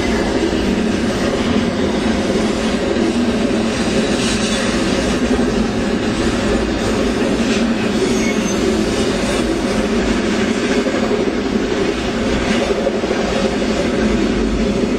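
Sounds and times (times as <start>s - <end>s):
freight train wheels on rails: 0.0s - 14.9s.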